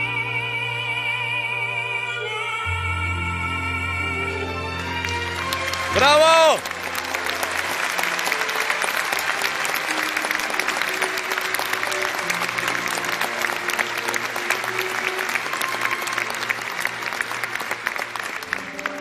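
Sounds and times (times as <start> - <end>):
held orchestral notes: 0.0 - 19.0
audience applauding: 4.8 - 19.0.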